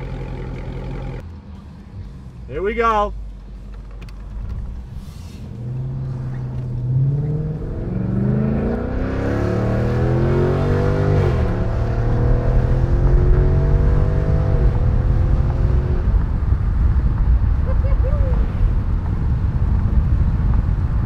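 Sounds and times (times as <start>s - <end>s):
car engine accelerating hard: 0.0s - 1.3s, 3.8s - 21.0s.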